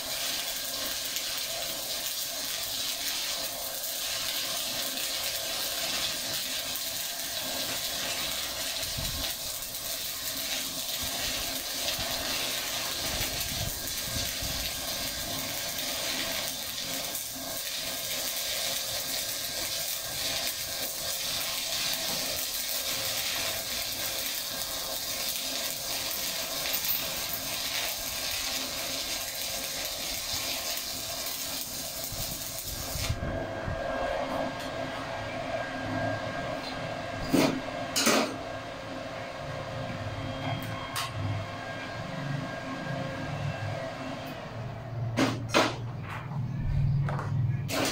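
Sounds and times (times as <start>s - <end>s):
welding arc crackling and sizzling: 0.0s - 33.3s, 47.1s - 47.9s.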